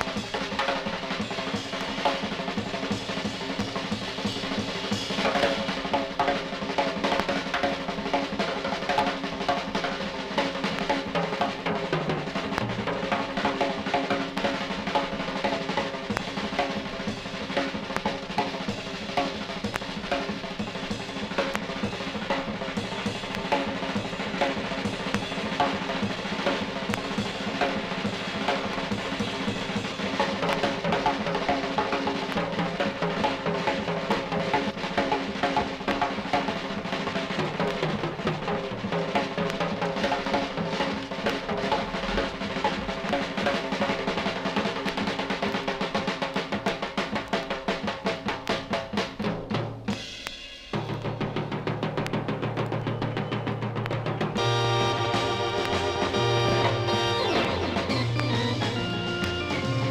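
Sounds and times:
drum kit playing: 0.0s - 59.9s
organ tones: 54.1s - 59.9s.

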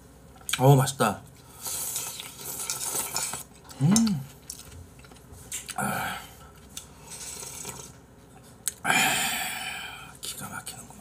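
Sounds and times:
slurping noodle broth: 1.6s - 3.5s, 7.0s - 8.0s
person humming: 3.7s - 4.3s.

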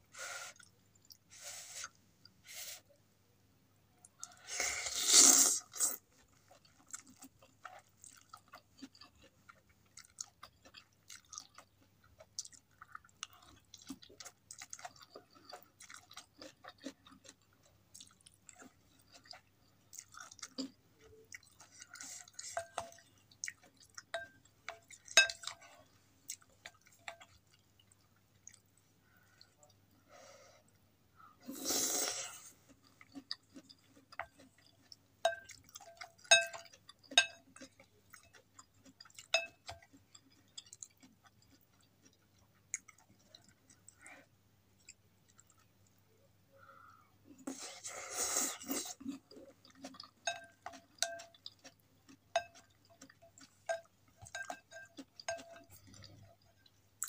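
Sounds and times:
person slurping noodles: 4.4s - 6.0s
wet chewing: 5.1s - 29.6s, 32.3s - 44.2s, 48.5s - 56.8s.

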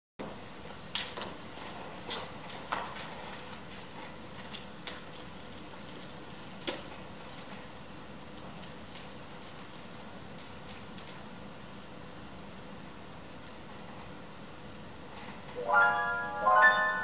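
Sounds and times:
hall room tone: 15.6s - 17.0s.

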